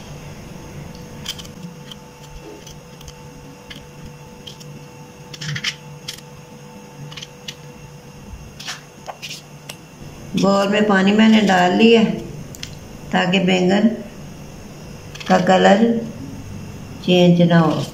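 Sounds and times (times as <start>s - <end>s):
faint steady hum: 0.0s - 17.9s
knife cutting vegetables: 1.0s - 6.3s.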